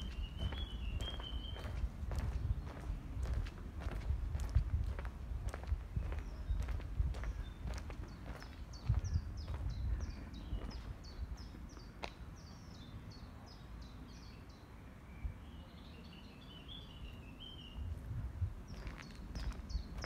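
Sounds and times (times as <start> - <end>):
bird chirping high: 0.0 - 1.8.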